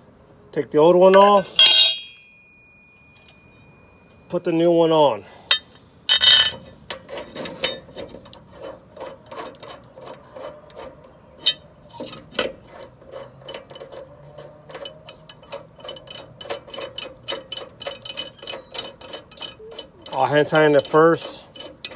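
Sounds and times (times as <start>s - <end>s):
metal-on-metal clicking: 5.5s - 21.9s.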